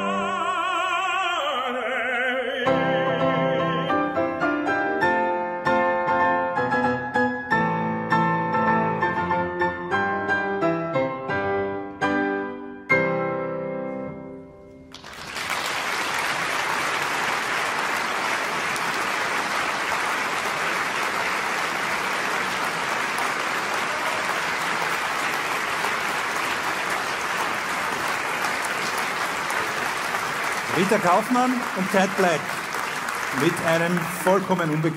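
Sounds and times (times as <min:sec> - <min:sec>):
audience applause: 0:14.9 - 0:34.9.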